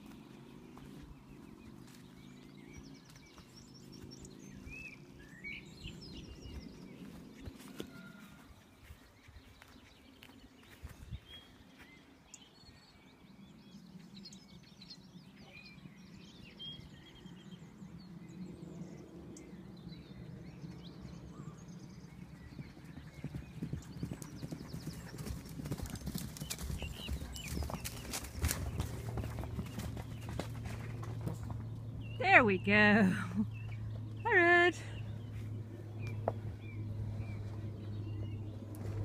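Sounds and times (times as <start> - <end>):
horses galloping on grass: 0.0 - 12.6, 20.0 - 34.2, 35.0 - 39.0.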